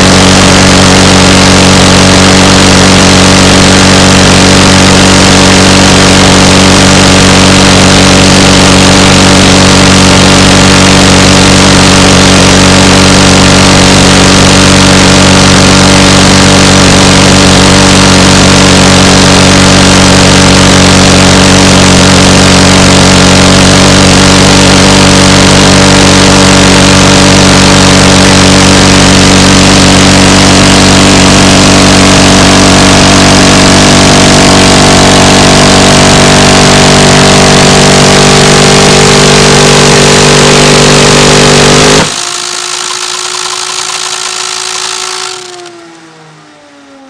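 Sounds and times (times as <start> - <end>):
minigun firing: 0.0 - 46.8
spinning barrels whining: 0.0 - 47.0.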